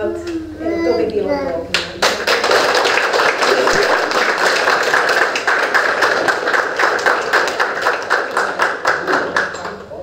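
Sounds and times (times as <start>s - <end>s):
audience applauding: 1.8s - 10.0s.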